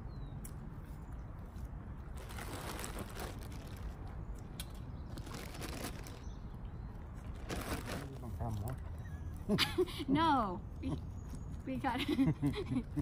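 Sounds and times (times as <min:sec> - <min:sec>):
plastic bag crinkling: 0:02.2 - 0:04.1, 0:05.1 - 0:06.3, 0:07.3 - 0:08.4.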